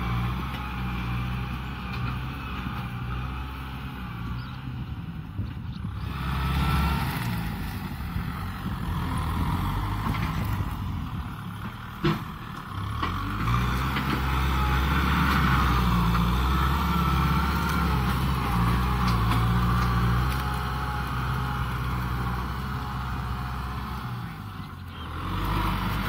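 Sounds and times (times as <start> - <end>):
tractor diesel engine under load: 0.0 - 26.0.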